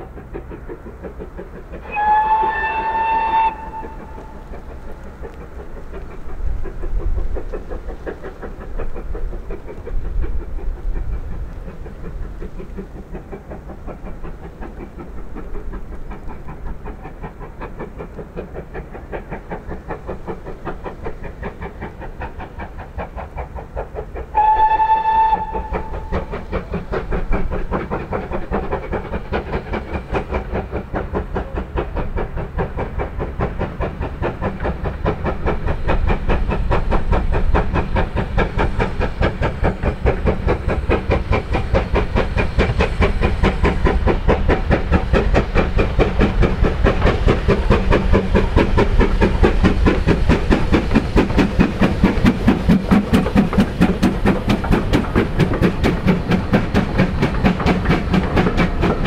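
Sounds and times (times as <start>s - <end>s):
steam locomotive exhaust beats: 0.0s - 59.0s
steam whistle blast: 1.8s - 4.4s, 24.3s - 26.1s.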